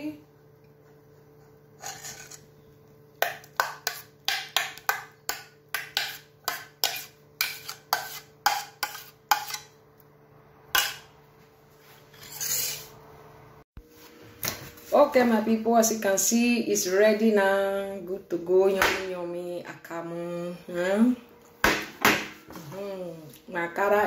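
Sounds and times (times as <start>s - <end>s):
metal spoon scraping metal pot: 1.8s - 2.7s, 5.3s - 9.7s, 12.1s - 13.0s.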